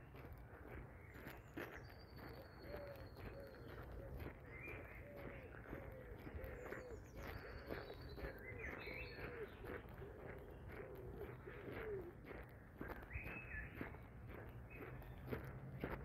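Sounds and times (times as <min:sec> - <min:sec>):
small birds chirping: 0:00.0 - 0:16.0
soft footsteps on path: 0:00.0 - 0:16.0
pigeon cooing: 0:05.0 - 0:12.4.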